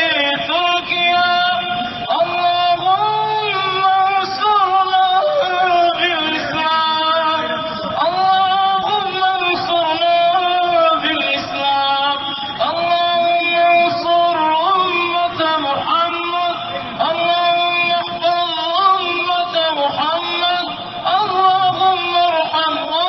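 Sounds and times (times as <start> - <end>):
man chanting melodic recitation: 0.0 - 23.0.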